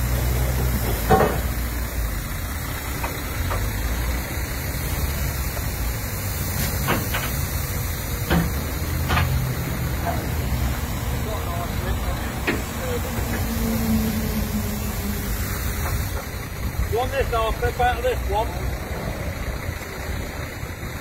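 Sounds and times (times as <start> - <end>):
diesel engine idling: 0.0 - 21.0
metal knocks and clanks: 0.8 - 1.6, 6.6 - 7.5, 8.2 - 10.4.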